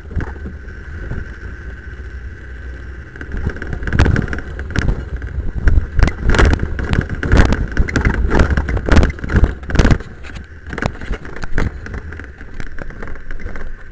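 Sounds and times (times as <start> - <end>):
car engine and tyre rumble: 0.0 - 13.9
car body jolting over bumps: 3.2 - 13.9.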